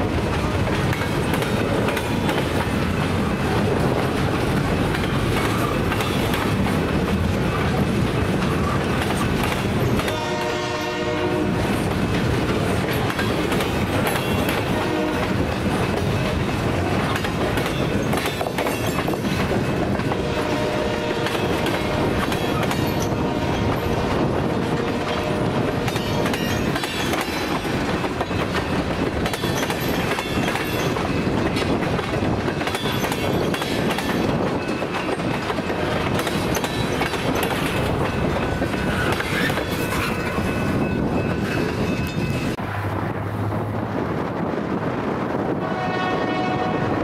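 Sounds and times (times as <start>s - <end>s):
wheels clicking over rail joints: 0.0s - 10.5s, 11.7s - 20.2s, 20.9s - 42.6s
freight train rolling past: 0.0s - 47.0s.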